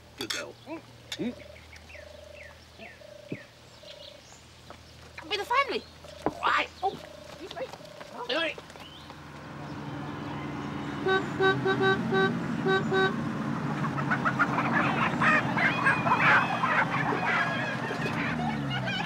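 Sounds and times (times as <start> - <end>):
coach engine running: 8.4 - 19.0
coach horn short toots: 10.9 - 13.2
hubbub of many voices: 14.6 - 19.0.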